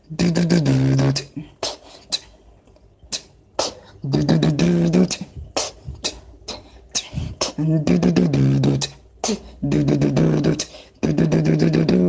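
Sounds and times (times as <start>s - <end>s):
low vocal bass line: 0.0s - 1.6s, 4.0s - 12.0s
rapid mouth clicks: 0.1s - 12.0s
beatboxing drum hits: 3.1s - 12.0s.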